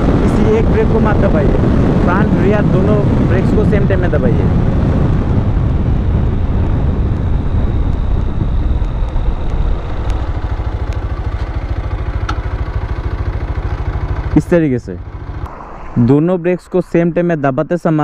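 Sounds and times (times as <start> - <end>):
wind and road noise: 0.0 - 18.0
motorcycle engine low pulsing: 4.6 - 18.0.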